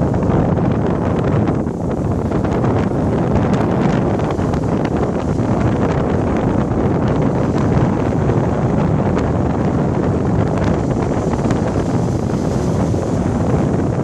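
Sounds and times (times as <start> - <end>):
small waves breaking on beach: 0.0 - 14.0
wind buffeting microphone: 0.0 - 14.0.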